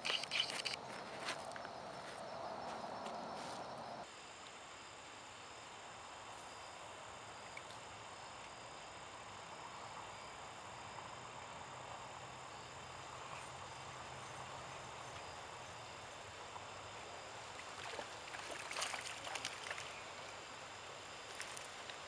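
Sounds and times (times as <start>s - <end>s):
outdoor background noise: 0.0s - 22.0s
fish splashing in water: 17.5s - 20.0s.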